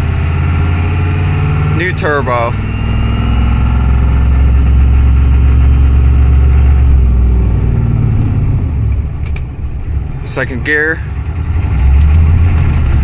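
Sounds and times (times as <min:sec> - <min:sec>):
diesel engine pulling: 0:00.0 - 0:13.0
faint turbo whistle: 0:02.4 - 0:03.9.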